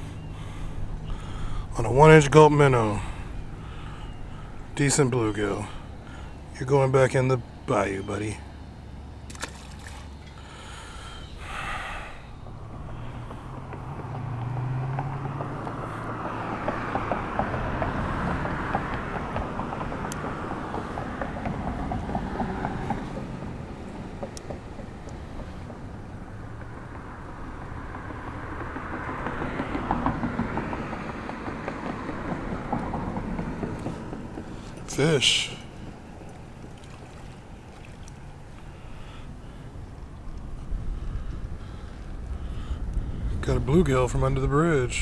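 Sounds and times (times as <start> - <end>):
road traffic passing: 0.0 - 45.0
wind rumble on microphone: 39.7 - 45.0.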